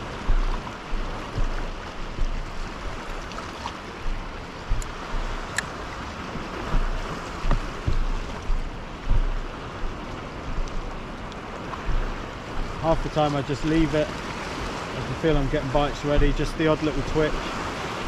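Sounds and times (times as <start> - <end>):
dull knocks: 0.0 - 5.5, 6.6 - 11.2, 11.8 - 14.0, 15.3 - 17.2
water lapping against kayak hull: 0.0 - 18.0.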